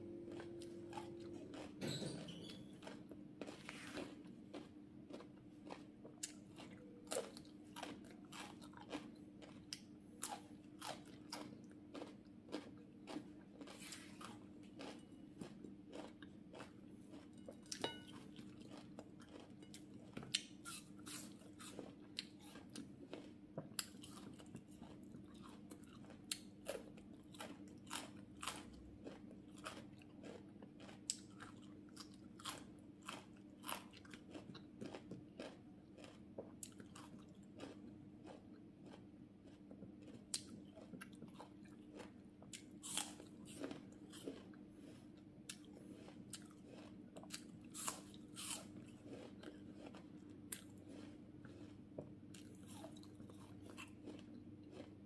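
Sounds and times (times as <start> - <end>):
faint low hum: 0.0 - 55.0
crunchy chewing of raw fruit: 0.2 - 1.8, 2.5 - 55.0.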